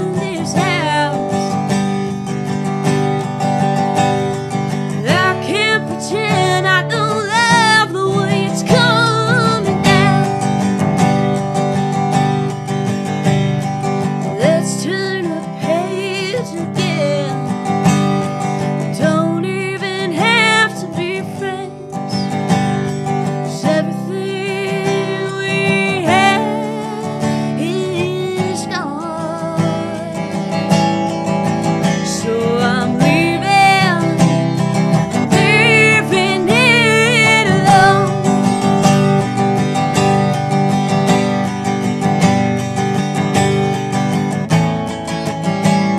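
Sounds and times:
woman singing: 0.0s - 2.2s, 4.0s - 10.8s, 14.1s - 40.5s
resonator guitar chords: 0.0s - 45.9s.

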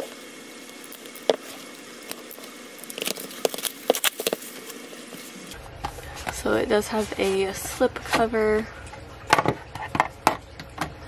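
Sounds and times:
packaging rustling: 0.7s - 5.4s.

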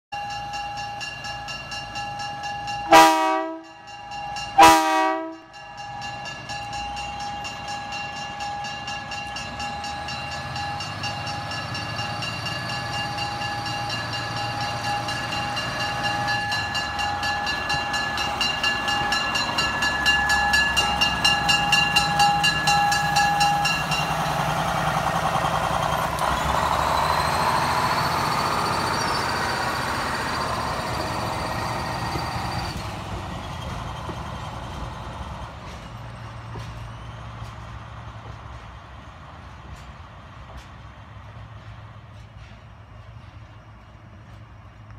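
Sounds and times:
train horn blasts: 2.8s - 3.8s, 4.6s - 5.5s
diesel engine whine and rumble: 18.9s - 44.9s.

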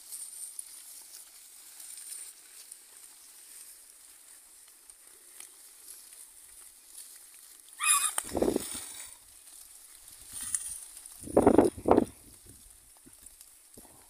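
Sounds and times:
pigs rustling and munching: 0.0s - 14.0s
pig squealing: 7.8s - 8.6s.

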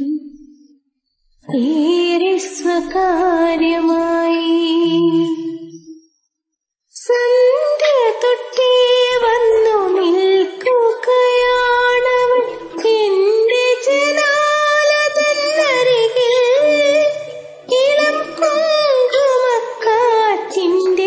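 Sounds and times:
woman singing with vibrato: 1.5s - 5.9s, 7.0s - 21.0s.

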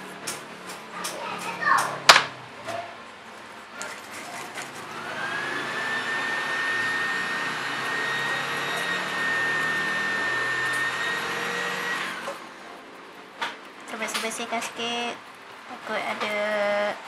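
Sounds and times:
small air tool whining: 4.4s - 12.8s.

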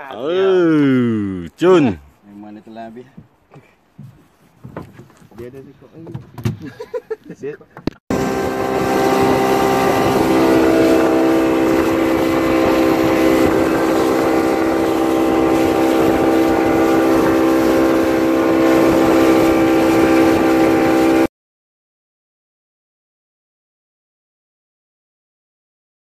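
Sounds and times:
boat engine droning: 8.1s - 21.3s
water rushing along hull: 8.1s - 21.3s.

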